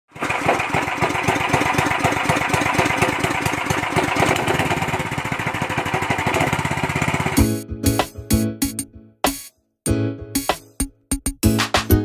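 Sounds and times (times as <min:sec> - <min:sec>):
small gasoline engine running: 0:00.1 - 0:07.6.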